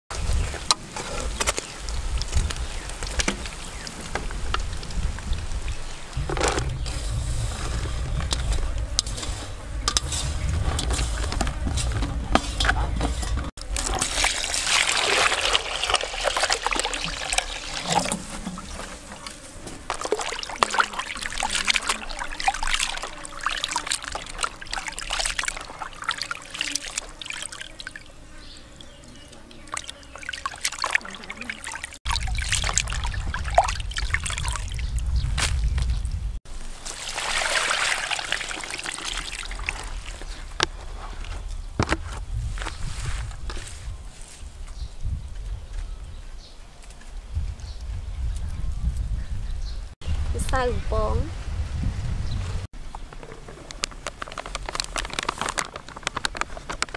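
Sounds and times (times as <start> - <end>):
water splashing and dripping: 0.1 - 28.2, 28.8 - 41.3
water pouring into plastic basin: 13.6 - 28.1, 29.7 - 35.1, 36.8 - 40.6, 53.8 - 56.9.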